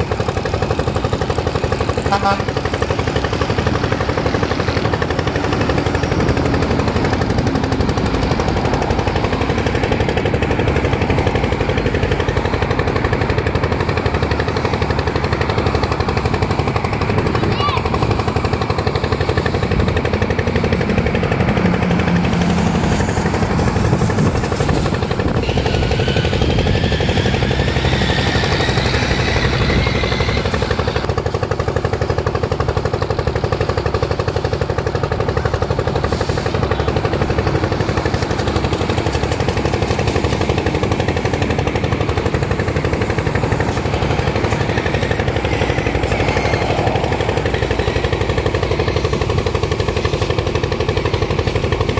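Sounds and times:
engine mechanical clatter: 0.0 - 51.9
high wavering whine: 37.1 - 51.9.

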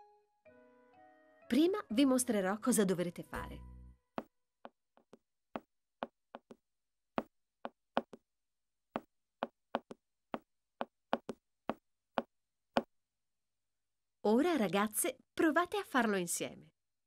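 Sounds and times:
tap footsteps on hard floor: 4.2 - 6.6, 7.2 - 8.2, 9.0 - 12.9.

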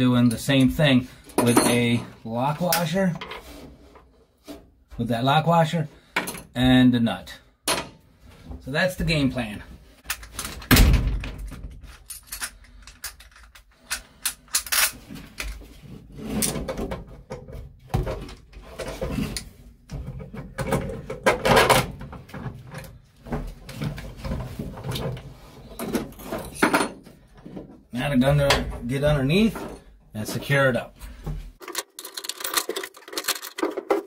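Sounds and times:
metal parts clinking on sheet metal: 0.2 - 2.1, 10.1 - 15.5, 31.6 - 34.0.

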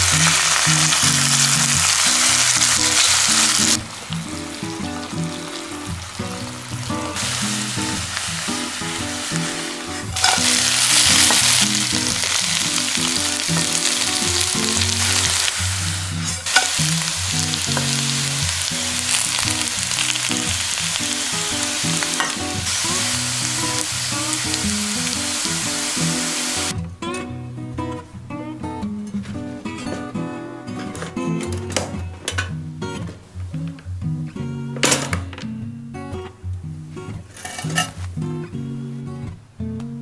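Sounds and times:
potato and onion sizzling in oil: 0.0 - 26.7
quiet acoustic guitar music: 0.0 - 40.0.

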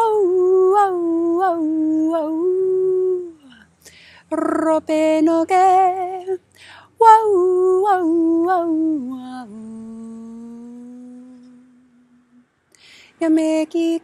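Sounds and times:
woman chanting a cappella: 0.0 - 12.2, 13.1 - 14.0.

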